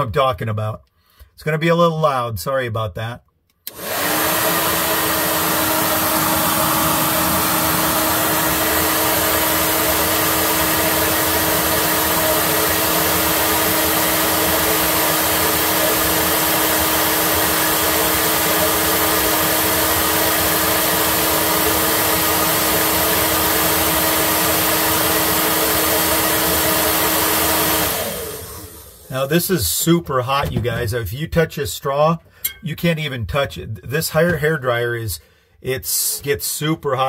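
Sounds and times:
hair dryer running: 3.7s - 29.1s.

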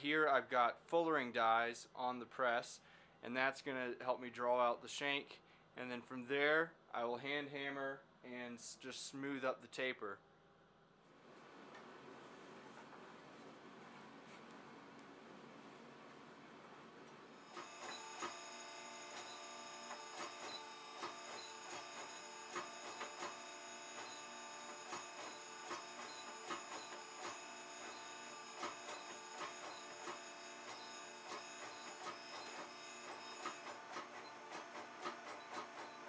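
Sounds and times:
hydraulic press whine: 17.4s - 36.0s.

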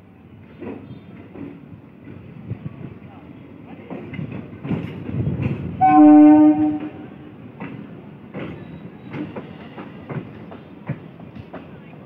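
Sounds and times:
train rumble: 0.0s - 12.0s
wheels clacking over rail joints: 3.7s - 12.0s
train horn: 5.8s - 7.3s.

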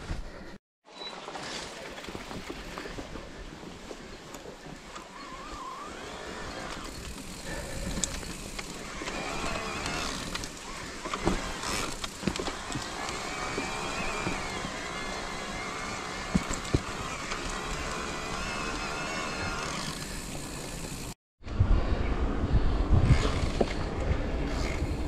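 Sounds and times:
tyres on leaves and earth: 0.0s - 25.0s
electric motor whine: 5.3s - 21.2s
bike knocking and rattling: 5.7s - 21.2s.

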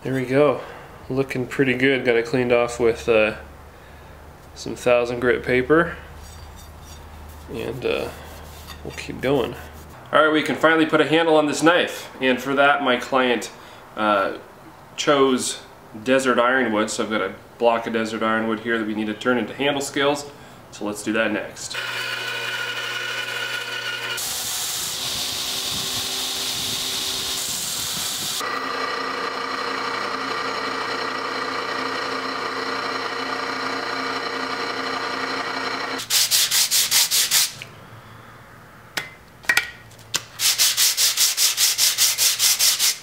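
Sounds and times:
drill press boring: 21.8s - 36.0s
band saw cutting wood: 21.8s - 37.5s
wood rubbed on sandpaper: 36.0s - 37.6s, 40.4s - 43.0s.

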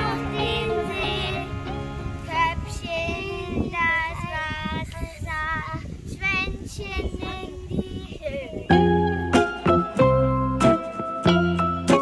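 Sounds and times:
girl singing: 0.0s - 8.9s.

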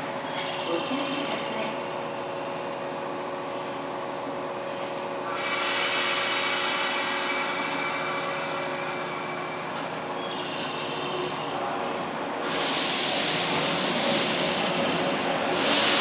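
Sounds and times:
electric train humming: 0.0s - 16.0s
loud high hiss: 5.2s - 9.6s, 12.4s - 16.0s.

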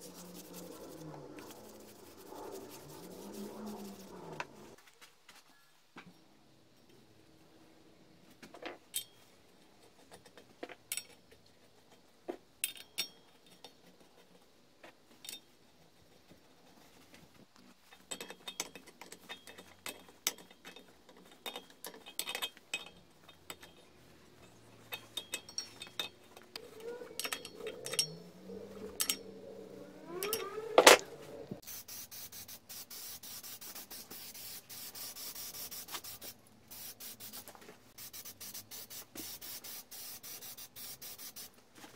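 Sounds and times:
spray paint can hissing: 0.0s - 4.1s, 31.6s - 41.6s
metallic clicks of spanner: 24.9s - 28.2s.

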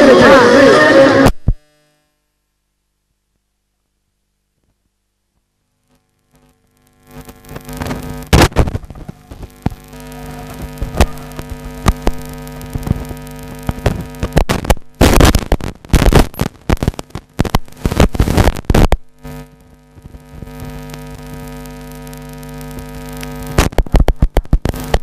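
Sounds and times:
loudspeaker hum: 0.0s - 1.6s, 6.4s - 25.0s
loud distorted crackling bursts: 5.8s - 25.0s.

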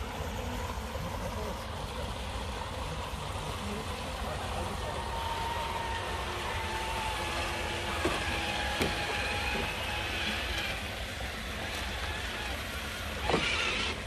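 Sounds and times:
toy truck motors whining: 0.0s - 14.0s.

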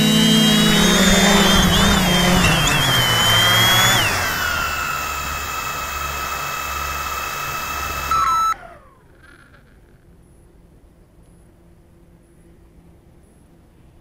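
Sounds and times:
drone motors whining: 0.0s - 9.6s.

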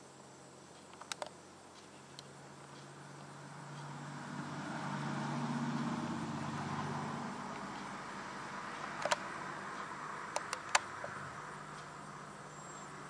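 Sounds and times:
sharp clicks: 0.8s - 4.0s, 8.8s - 12.0s
motor vehicle passing: 2.4s - 13.0s.

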